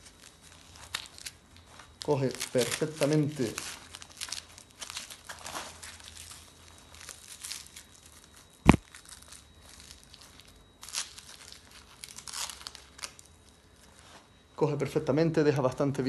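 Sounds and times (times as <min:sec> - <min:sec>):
tourniquet strap rustling and scraping: 0:00.0 - 0:14.4.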